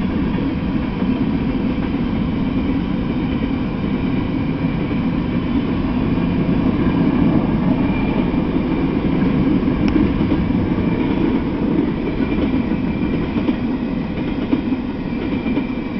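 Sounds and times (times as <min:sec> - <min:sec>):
train wheels rumbling on rails: 0:00.0 - 0:15.9.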